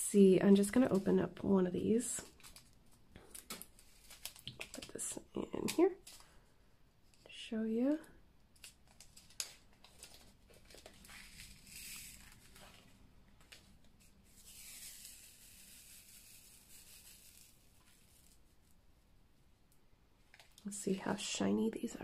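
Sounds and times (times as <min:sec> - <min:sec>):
tiny beads rattling in plastic tray: 0:11.2 - 0:12.5, 0:14.4 - 0:18.3.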